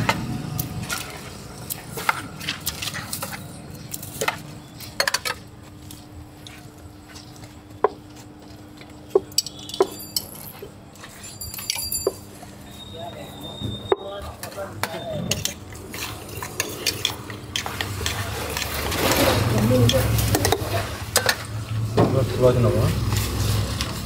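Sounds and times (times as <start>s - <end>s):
spoon clinking on steel bowls: 9.1s - 12.5s, 13.8s - 21.5s
metallic ringing: 9.3s - 10.6s, 11.2s - 14.0s.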